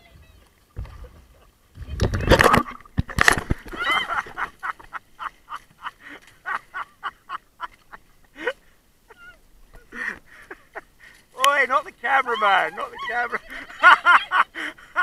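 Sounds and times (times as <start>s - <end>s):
paddle blades splashing water: 0.0s - 15.0s
rhythmic bursts of laughter: 3.8s - 11.1s, 12.6s - 15.0s.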